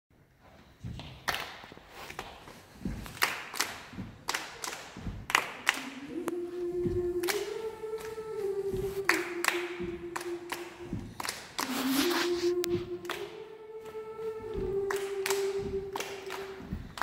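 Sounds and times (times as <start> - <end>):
foot stomps: 0.5 - 17.0
hand claps: 1.0 - 6.2, 6.8 - 17.0
children singing held note: 5.7 - 17.0.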